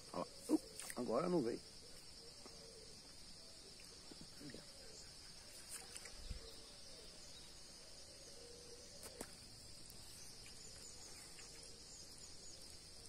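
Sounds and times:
high-pitched insect chorus: 0.0s - 13.0s
small click: 9.0s - 9.4s.

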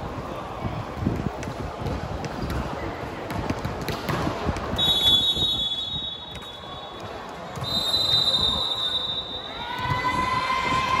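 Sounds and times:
ball bouncing: 1.1s - 4.8s
referee's whistle blast: 4.8s - 7.0s, 7.6s - 9.6s.

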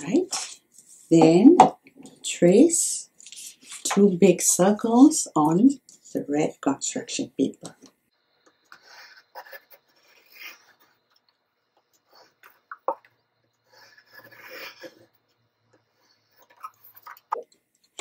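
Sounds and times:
pencil scratching on paper: 8.7s - 11.1s, 13.6s - 17.1s.

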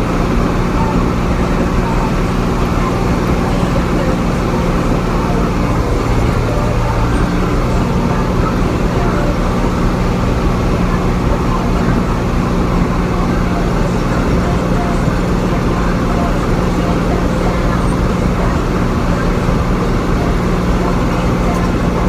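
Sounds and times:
tractor diesel engine droning: 0.0s - 22.0s.

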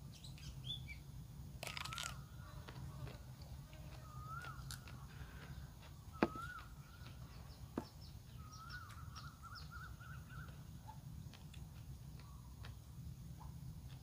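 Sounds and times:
bird whistling: 6.1s - 7.1s, 8.3s - 10.6s.

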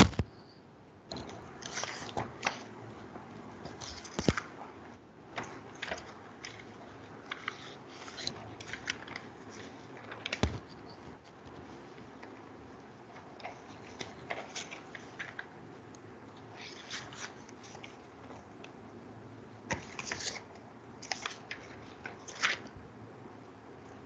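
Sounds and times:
small clicks and crackles: 5.4s - 15.5s.

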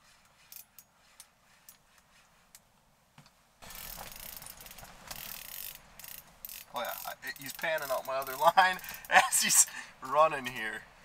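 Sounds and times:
fishing reel drag buzzing: 3.6s - 9.1s
fishing reel clicks: 3.7s - 9.1s.

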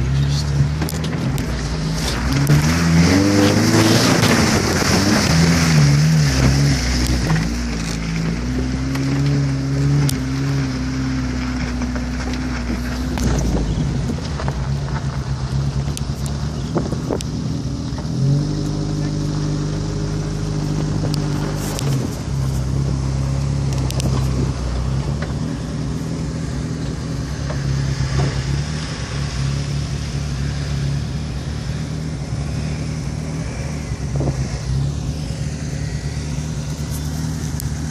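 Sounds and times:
engine idling: 10.9s - 37.9s.

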